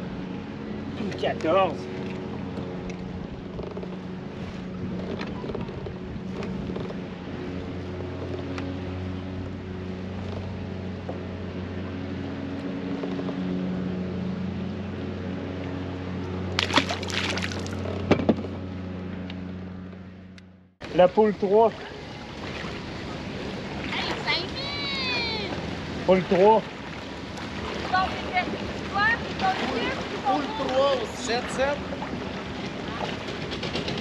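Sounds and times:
water rushing past hull: 0:00.0 - 0:18.1, 0:20.8 - 0:34.0
boat motor humming: 0:00.0 - 0:34.0
water splash: 0:16.5 - 0:17.9, 0:21.6 - 0:33.9.

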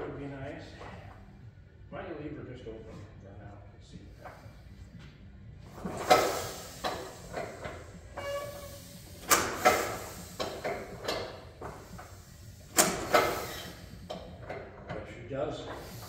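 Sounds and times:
hiss: 0:04.0 - 0:04.9, 0:05.7 - 0:14.9, 0:15.5 - 0:16.0
brief squeal: 0:08.2 - 0:09.0.

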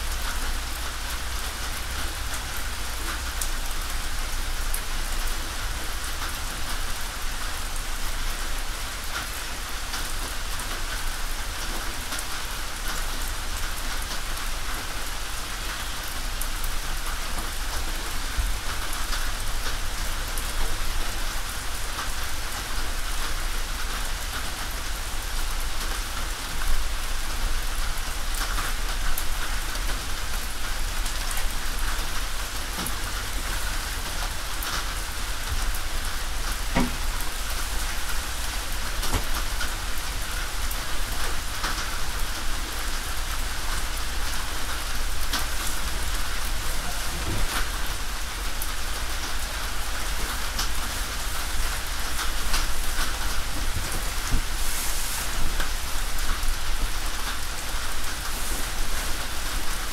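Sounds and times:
rain on a tin roof: 0:00.0 - 0:59.9
loud hit on roof: 0:36.7 - 0:37.1.

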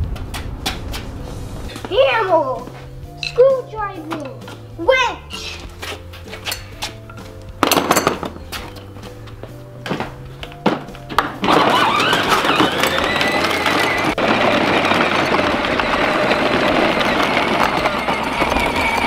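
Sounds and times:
plastic wheels crunching on gravel: 0:10.0 - 0:19.0
electric motor whine: 0:11.4 - 0:19.0.

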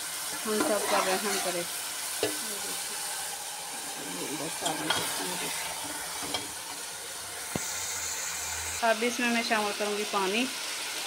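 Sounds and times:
frying hiss: 0:00.0 - 0:11.0
spoon scraping pot: 0:00.3 - 0:01.6.

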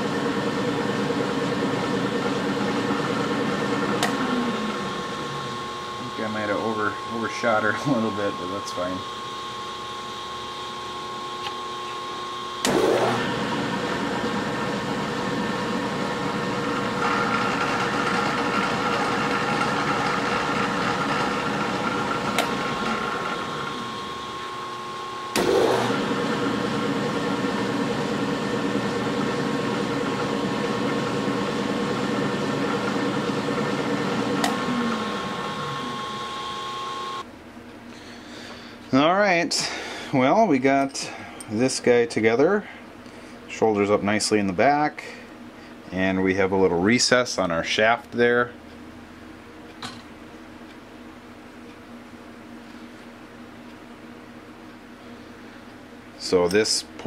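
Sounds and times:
metal lathe whining and humming: 0:00.0 - 0:37.3.

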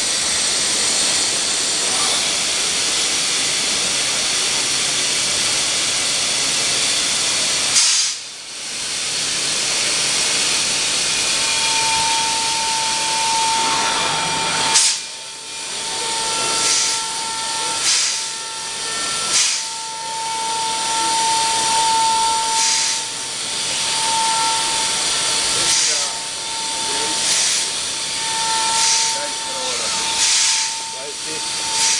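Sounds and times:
high machine whine: 0:00.0 - 0:31.9
machine rushing hiss: 0:00.0 - 0:31.9
short sharp air hisses: 0:07.7 - 0:08.2, 0:16.6 - 0:17.0, 0:17.8 - 0:18.3, 0:19.3 - 0:19.7, 0:22.6 - 0:23.1, 0:25.6 - 0:26.1, 0:27.2 - 0:27.7, 0:28.8 - 0:29.2, 0:30.2 - 0:30.7.

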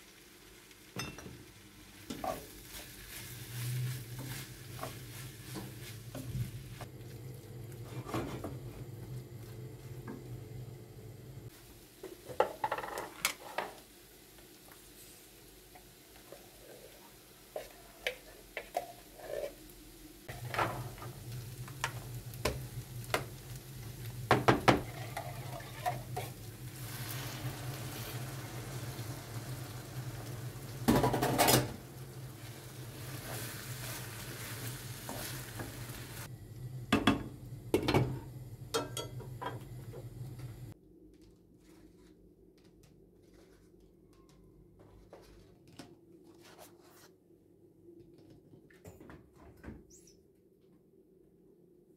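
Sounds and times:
food sizzling in a frying pan: 0:00.0 - 0:40.8
wooden spoon knocking on pan: 0:24.3 - 0:24.8.

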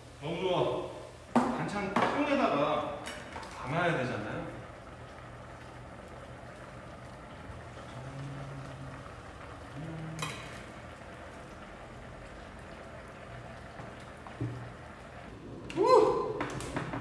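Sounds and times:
faint kitchen hiss: 0:00.0 - 0:17.0.

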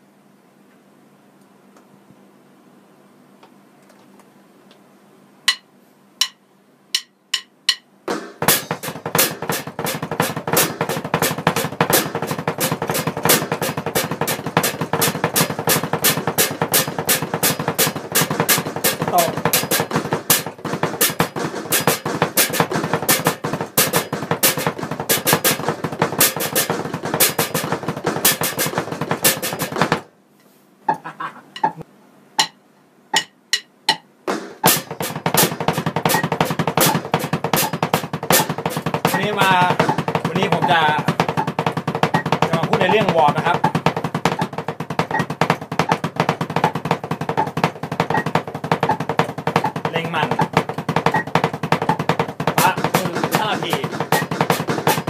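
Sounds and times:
electronic drum kick pedal: 0:06.2 - 0:30.1, 0:33.9 - 0:55.0
single drum hits: 0:33.2 - 0:55.0.

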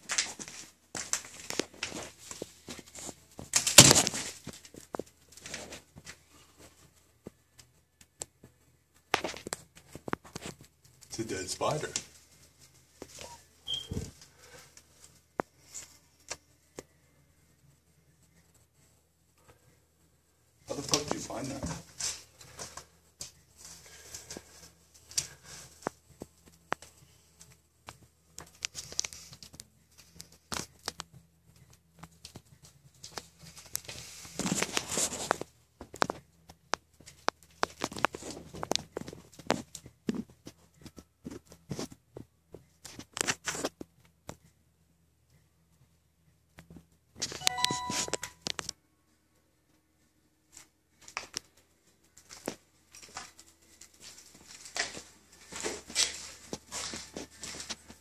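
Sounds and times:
rustling and crinkling: 0:00.0 - 0:44.6, 0:49.6 - 0:58.0
brief squeaky ring: 0:13.7 - 0:14.0.

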